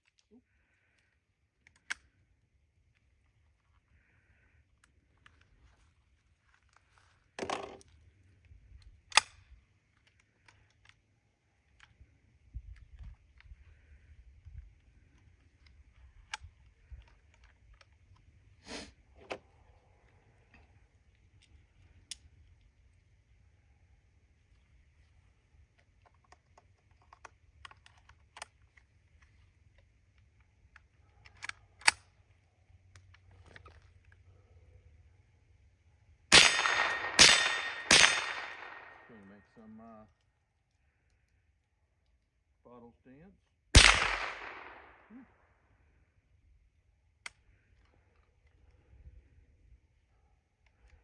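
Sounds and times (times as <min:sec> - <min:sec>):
sharp metallic snap: 0:36.4 - 0:39.1
rifle action clicking: 0:43.8 - 0:44.8.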